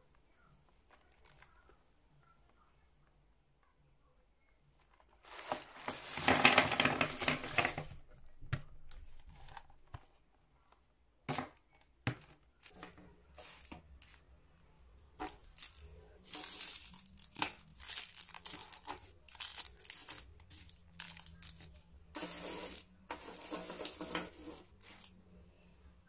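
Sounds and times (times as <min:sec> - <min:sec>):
wrappers crinkling: 0:00.8 - 0:01.8, 0:04.8 - 0:08.0, 0:13.4 - 0:14.2, 0:15.2 - 0:25.2
wrapped sweets tapping on table: 0:05.3 - 0:10.2, 0:11.3 - 0:14.2, 0:15.2 - 0:21.8.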